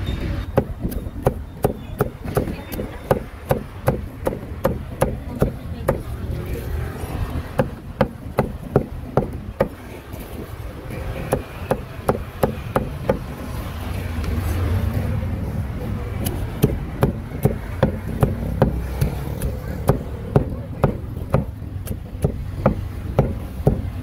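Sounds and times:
cleaver chopping meat on board: 0.6s - 6.1s, 7.4s - 9.8s, 16.2s - 24.0s.

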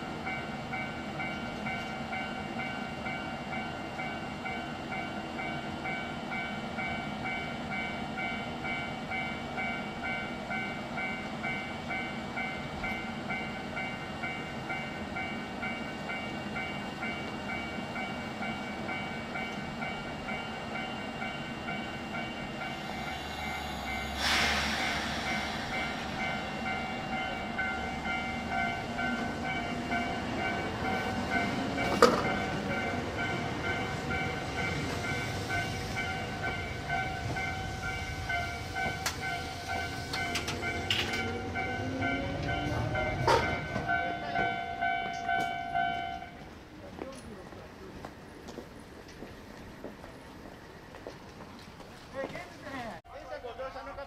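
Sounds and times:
level crossing warning bell ringing: 0.1s - 24.3s, 25.2s - 46.5s
loud hiss of air: 22.7s - 27.0s.

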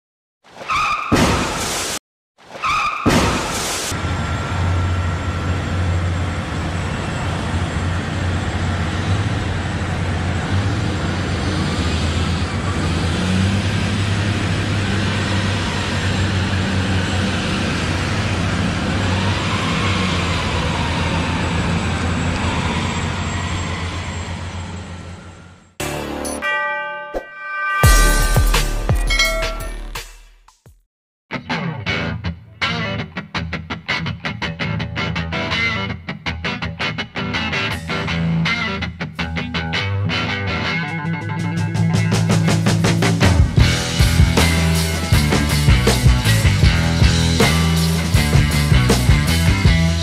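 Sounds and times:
heavy vehicle engine running: 3.9s - 26.2s, 41.3s - 50.0s.

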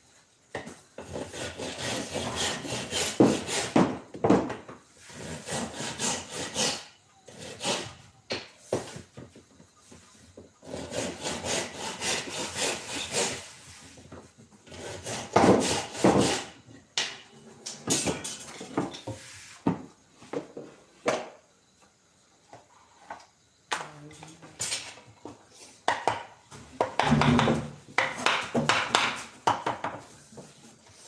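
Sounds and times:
hand tool scraping wood: 1.0s - 4.0s, 5.0s - 8.1s, 10.6s - 19.6s.

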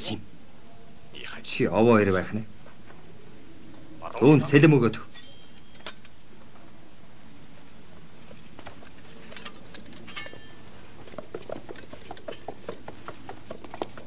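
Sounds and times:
background hiss: 0.0s - 14.0s
horse hooves clopping on hard ground: 7.9s - 14.0s.

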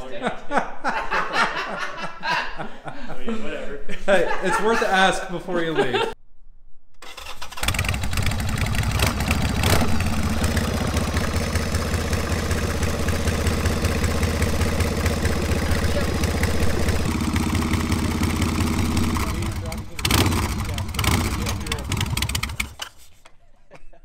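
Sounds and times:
motorcycle engine idling: 7.5s - 22.9s.

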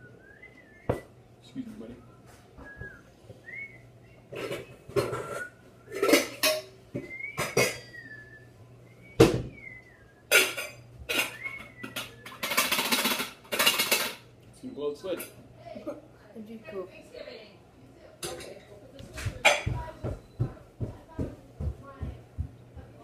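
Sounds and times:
dishes and utensils clattering: 4.3s - 8.0s, 10.3s - 14.3s, 15.0s - 15.4s, 18.2s - 20.4s.

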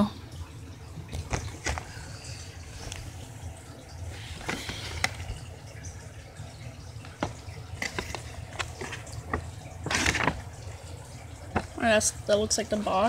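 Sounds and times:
low steady hum: 0.0s - 13.0s
cardboard box clicks and rustles: 7.2s - 10.5s.

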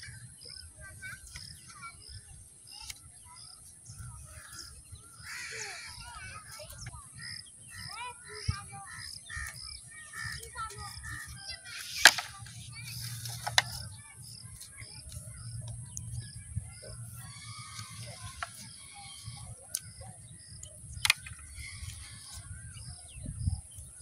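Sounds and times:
bamboo poles knocking: 11.8s - 12.4s, 13.2s - 13.8s, 21.0s - 21.8s.

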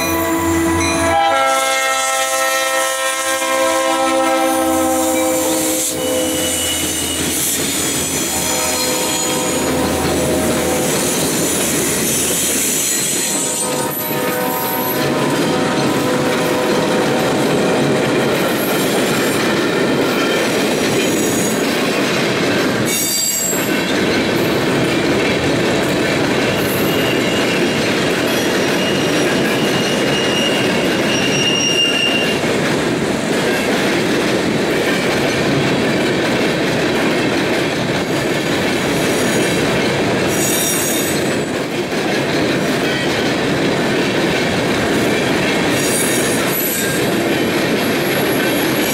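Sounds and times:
diesel locomotive engine passing: 0.0s - 31.2s
train wheels rumbling on rails: 0.0s - 48.9s
high-pitched wheel squeals: 5.0s - 9.7s, 28.4s - 32.4s.

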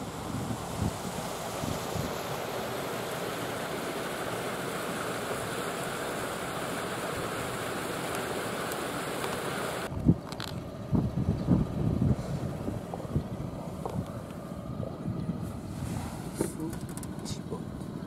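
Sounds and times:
wind on microphone: 0.0s - 2.9s, 9.7s - 17.1s.

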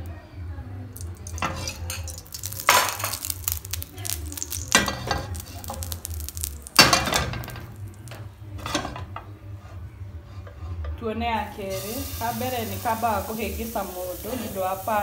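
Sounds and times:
frying pan scraping on stove grate: 1.2s - 11.0s.

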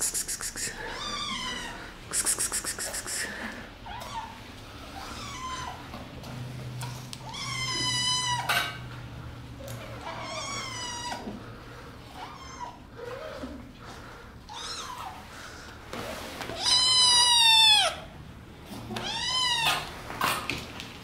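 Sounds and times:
cats meowing: 0.4s - 3.1s, 3.8s - 6.0s, 7.2s - 8.9s, 9.9s - 11.4s, 12.1s - 13.7s, 14.4s - 15.3s, 16.5s - 18.1s, 18.8s - 20.0s.

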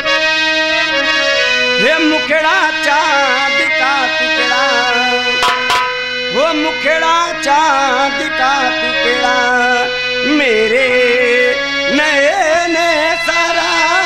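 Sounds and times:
reed organ melody with drone: 0.0s - 14.0s
folk band playing: 3.6s - 7.0s
hand drum strokes: 5.4s - 6.2s.

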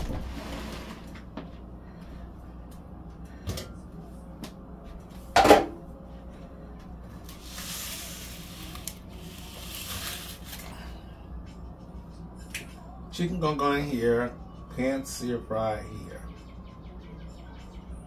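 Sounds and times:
soft hissing rustle: 7.3s - 10.6s.

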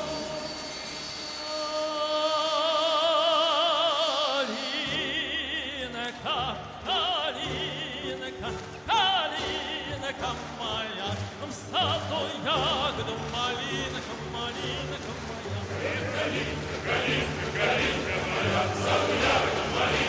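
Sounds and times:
operatic singing: 0.0s - 20.0s
instrumental accompaniment: 4.6s - 20.0s.

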